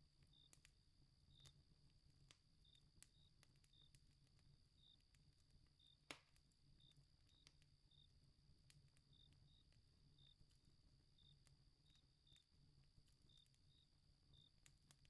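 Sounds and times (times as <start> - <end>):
wood fire crackling: 0.0 - 15.0
crickets chirping: 0.2 - 0.6, 1.2 - 1.7, 2.6 - 4.0, 4.7 - 5.0, 6.8 - 8.2, 9.1 - 12.5, 13.2 - 14.6.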